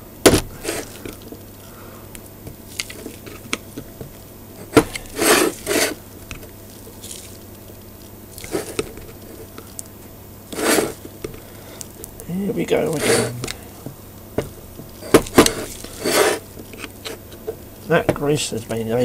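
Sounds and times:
rasping scrapes: 0:00.5 - 0:01.0, 0:04.6 - 0:06.0, 0:08.4 - 0:08.8, 0:10.5 - 0:11.0, 0:12.8 - 0:13.6, 0:15.0 - 0:17.4.

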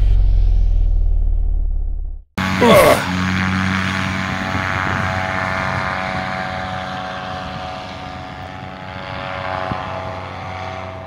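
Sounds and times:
paramotor engine droning: 0:02.4 - 0:11.0.

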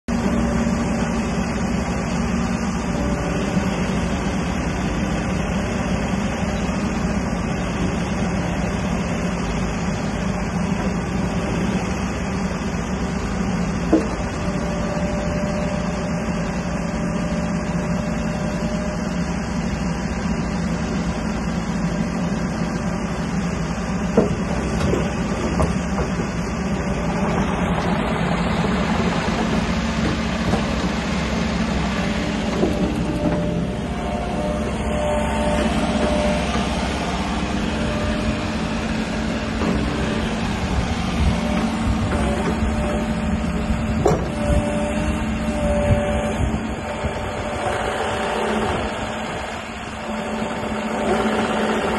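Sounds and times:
diesel engine running: 0:00.1 - 0:51.9
hydraulic whine: 0:00.1 - 0:51.9
excavator clanks: 0:04.2 - 0:16.4, 0:23.2 - 0:51.9.

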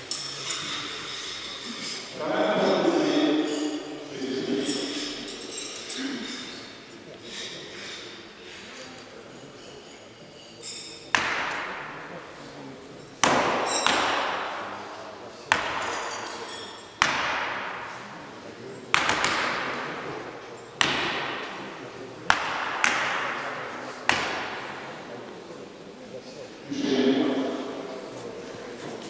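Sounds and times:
knives striking wooden targets: 0:11.1 - 0:12.2, 0:13.2 - 0:18.1, 0:18.9 - 0:20.2, 0:20.8 - 0:24.9.

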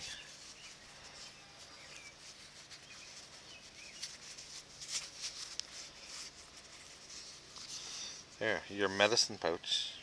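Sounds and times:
faint bird chirps: 0:00.0 - 0:04.4
leather rustling and creasing: 0:00.0 - 0:08.3
handling noises: 0:00.0 - 0:08.4.

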